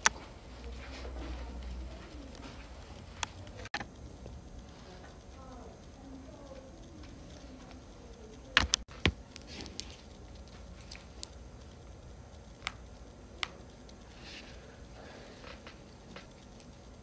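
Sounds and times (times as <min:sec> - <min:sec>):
light scattered clicks: 0:02.0 - 0:17.0.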